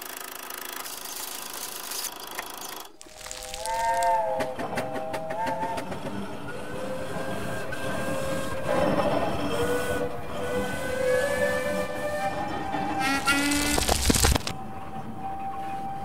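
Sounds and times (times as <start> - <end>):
train rumbling on rails: 3.2 - 16.0
steam locomotive whistle: 3.6 - 13.5.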